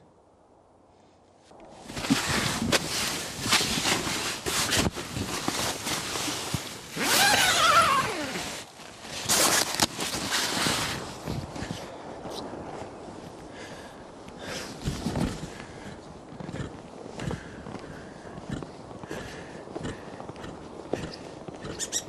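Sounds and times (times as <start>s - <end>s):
tent fabric rustling: 1.4s - 13.4s, 14.4s - 15.5s
footsteps in snow: 1.4s - 22.0s
zipper pull: 3.4s - 8.6s, 9.2s - 11.0s.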